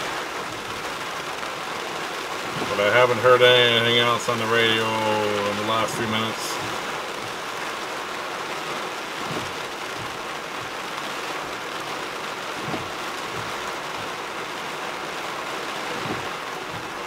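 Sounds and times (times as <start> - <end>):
heavy rain on a vehicle roof: 0.0 - 17.0
soft thuds: 2.4 - 2.8, 6.6 - 7.6, 9.2 - 11.0, 12.5 - 14.4, 15.9 - 17.0.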